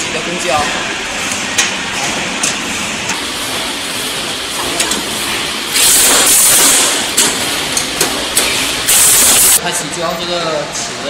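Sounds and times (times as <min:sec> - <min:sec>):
electric wrench hissing burst: 0:05.7 - 0:07.3, 0:08.5 - 0:09.6.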